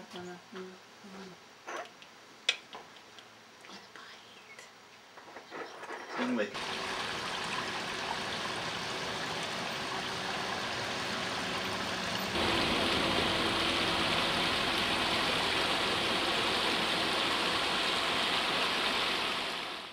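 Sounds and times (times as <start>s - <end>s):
stream water rushing: 6.6s - 19.9s.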